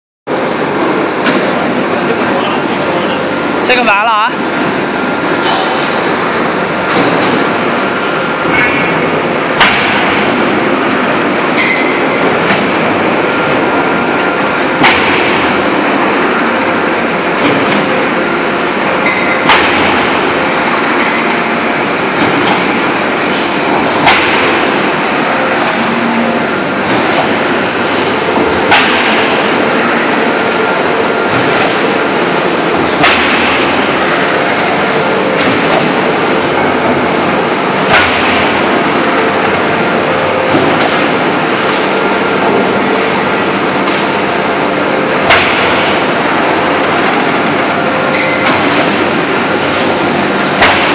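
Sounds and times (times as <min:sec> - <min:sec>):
forge machinery hiss and rumble: 0:00.3 - 0:50.9
sharp metallic clank: 0:11.5 - 0:12.6, 0:37.9 - 0:38.6, 0:47.9 - 0:49.0.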